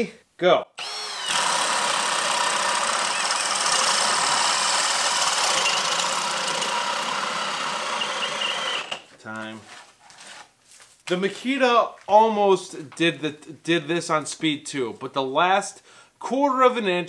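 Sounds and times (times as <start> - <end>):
cordless drill boring through wood: 0.8 - 9.1.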